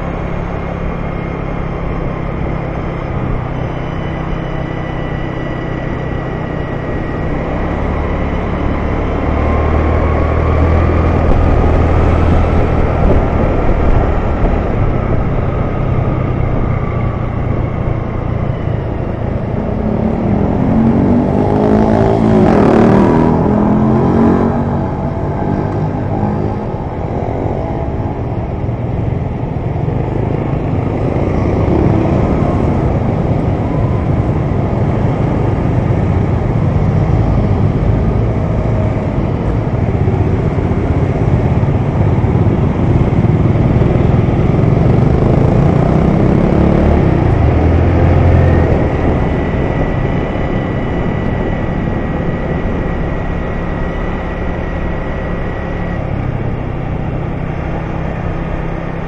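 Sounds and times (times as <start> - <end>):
road noise: 0.0 - 59.0
vehicle passing close by: 7.3 - 28.9
motor scooter engine running: 25.6 - 59.0.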